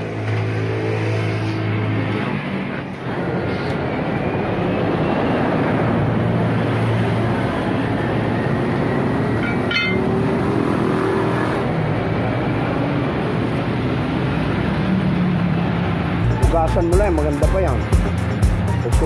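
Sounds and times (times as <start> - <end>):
vehicle engine and traffic: 0.0 - 19.0
sharp metallic clink: 9.4 - 10.2.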